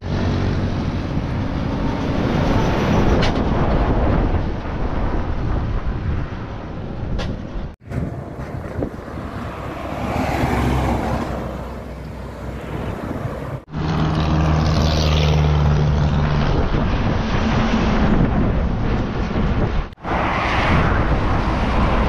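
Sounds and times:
trucks passing on highway: 0.0s - 22.0s
diesel engine humming: 7.8s - 20.1s.

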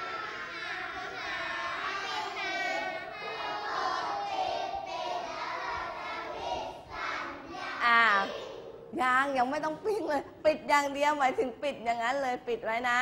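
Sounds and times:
children reciting in unison: 0.0s - 8.9s.

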